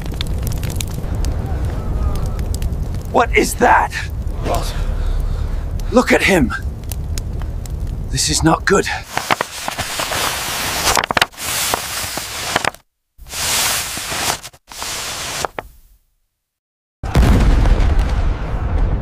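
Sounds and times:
loud hiss with crackles: 0:00.0 - 0:15.9
deep cannon boom: 0:17.1 - 0:19.0.

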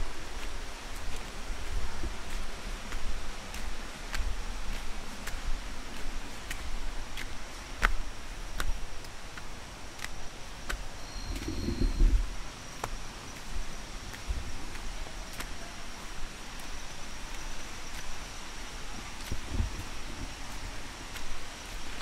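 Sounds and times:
footsteps on forest trail: 0:00.0 - 0:22.0
high insect whine: 0:11.0 - 0:12.4.

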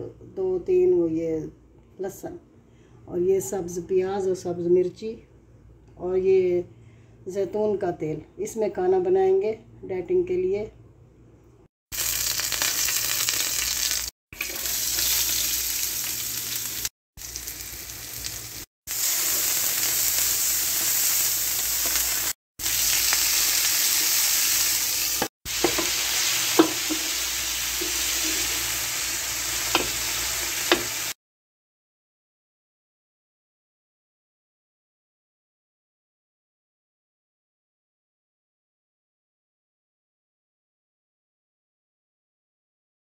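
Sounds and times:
vegetables sizzling in oil: 0:11.9 - 0:31.2
spatula stirring in pan: 0:25.5 - 0:28.8.

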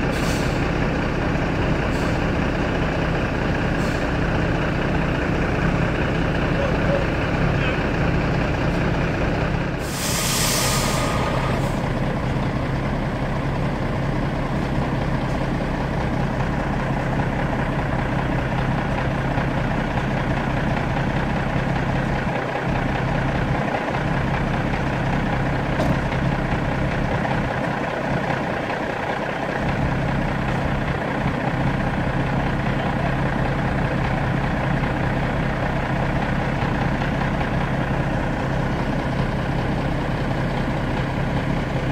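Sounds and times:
diesel lorry engine idling: 0:00.0 - 0:41.9
air brake hiss: 0:00.1 - 0:00.7, 0:09.8 - 0:12.1.

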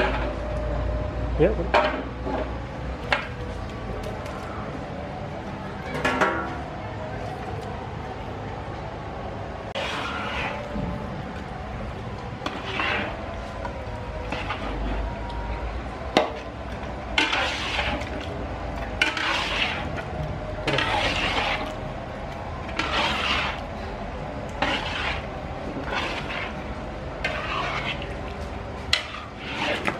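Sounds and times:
spatula scraping in wok: 0:00.0 - 0:00.4, 0:09.7 - 0:29.9.

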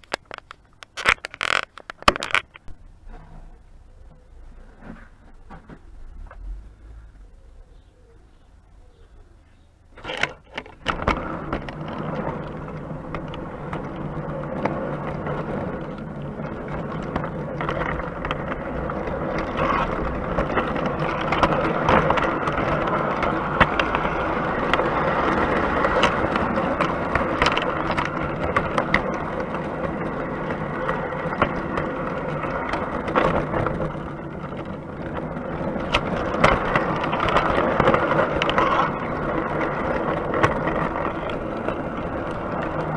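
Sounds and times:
model train wheels rolling on track: 0:00.0 - 0:03.4, 0:10.0 - 0:42.9
motor hum: 0:10.5 - 0:42.9.

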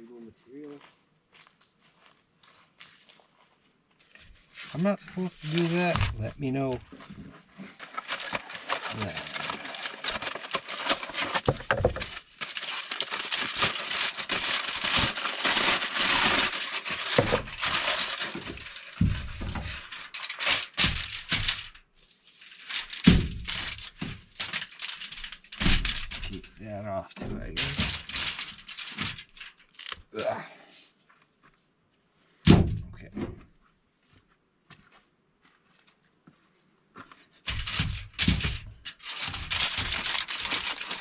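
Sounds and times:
corn husks rustling: 0:00.0 - 0:30.9, 0:37.4 - 0:41.0
foil crinkling: 0:04.2 - 0:26.6, 0:27.4 - 0:30.1, 0:37.5 - 0:41.0
aluminum foil tearing: 0:04.7 - 0:26.6, 0:27.5 - 0:30.2, 0:37.5 - 0:41.0.

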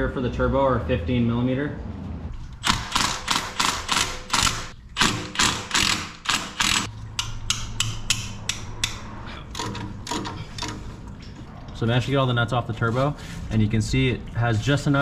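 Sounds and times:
hand ratchet clicking: 0:02.5 - 0:10.8.

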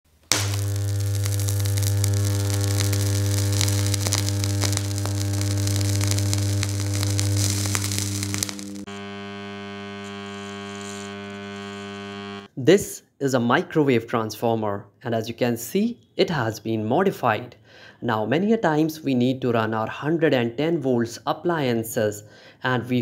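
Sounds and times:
electrical arcing crackle: 0:00.0 - 0:12.5.

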